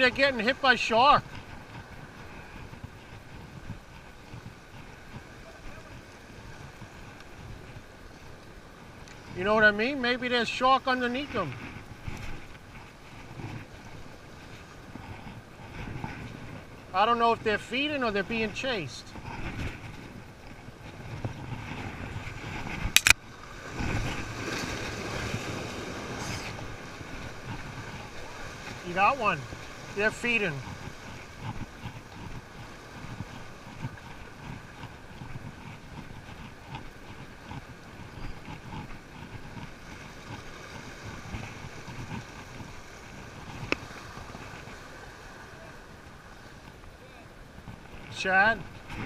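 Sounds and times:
wind on microphone: 0.0s - 9.9s, 11.3s - 49.0s
small waves washing against rocks: 0.0s - 49.0s
sharp clicks: 22.9s - 23.2s.

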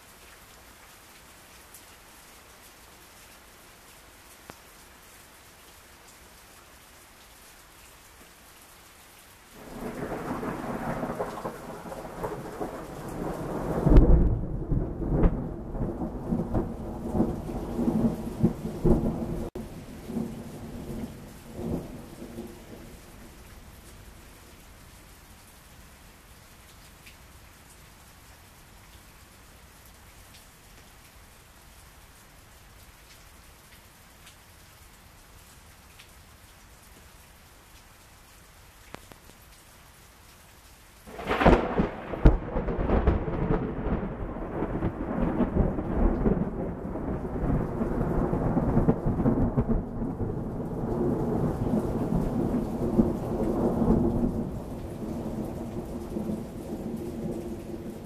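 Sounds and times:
heavy rain: 0.0s - 58.0s
thunder crack and rumble: 9.6s - 22.5s, 41.1s - 57.9s.

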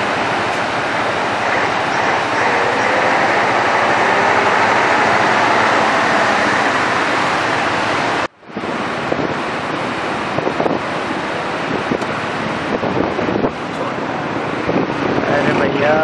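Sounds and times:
flood water rushing over rocks: 0.0s - 14.5s.

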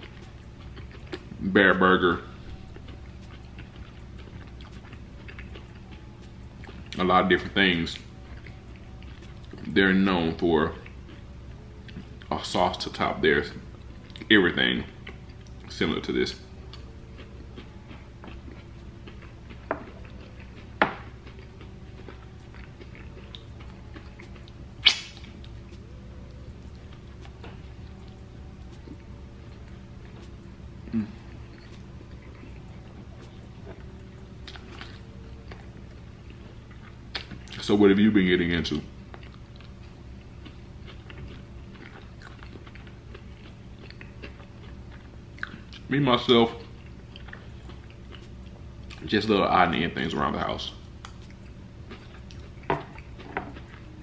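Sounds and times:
close chewing: 0.0s - 37.7s, 38.7s - 49.1s, 50.7s - 54.0s
low hum: 0.0s - 54.0s
wet mouth ticks: 24.4s - 25.6s
sharp mouth smacks: 24.8s - 25.4s.

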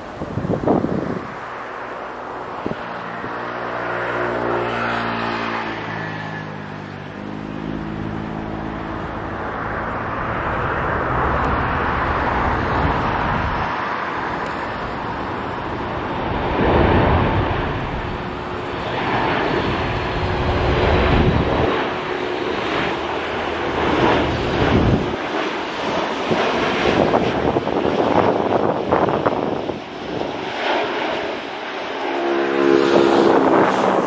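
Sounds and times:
wind buffeting microphone: 0.0s - 1.8s, 2.5s - 3.5s, 10.0s - 30.5s, 32.7s - 34.0s
jet engine rushing noise: 0.0s - 34.0s
jet engine whine: 0.0s - 34.0s.

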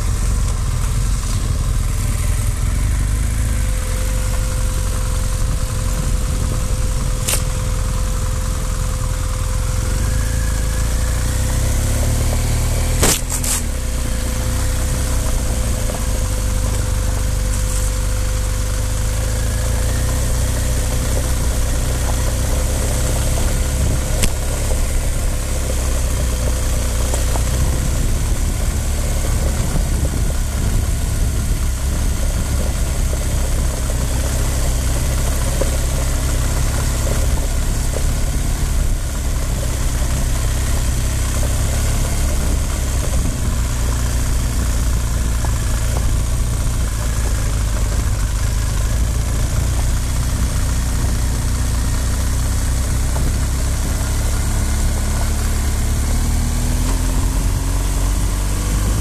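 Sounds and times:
motorcycle engine running: 0.0s - 59.0s
wind and tyre hiss: 0.0s - 59.0s.

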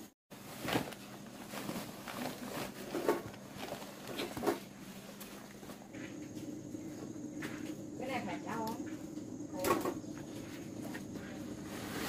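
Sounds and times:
rustling: 0.3s - 6.0s, 10.4s - 12.0s.

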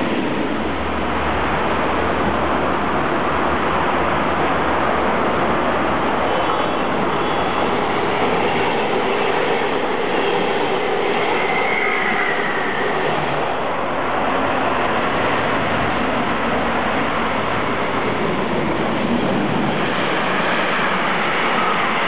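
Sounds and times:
train wheels running on track: 0.0s - 22.0s
faint high wheel squeal: 6.2s - 7.9s, 11.2s - 13.2s.

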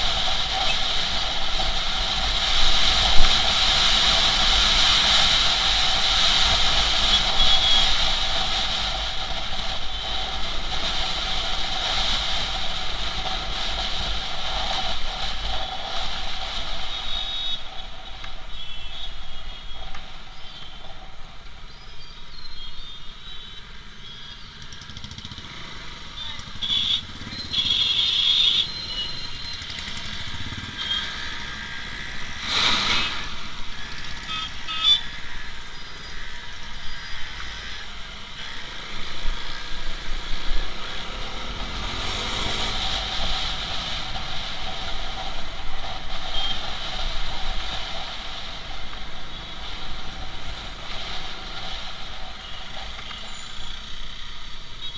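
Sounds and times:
motorcycle engine and road noise: 0.0s - 54.9s
surrounding traffic engines: 0.0s - 54.9s
engine revving: 37.3s - 44.6s.

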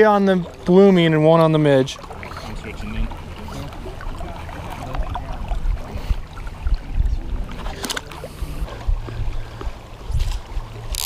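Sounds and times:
river burbling and splashing: 0.0s - 11.0s
wind rumbling on microphone: 3.0s - 11.0s.

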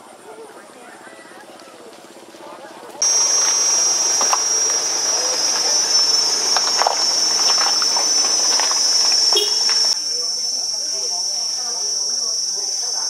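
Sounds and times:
insects shrilling: 3.0s - 13.0s.

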